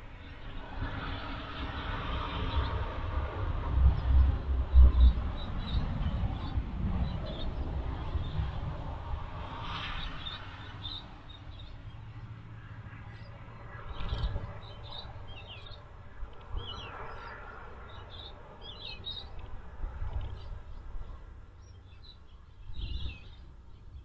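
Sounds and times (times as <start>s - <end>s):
small birds chirping: 9.8s - 24.0s.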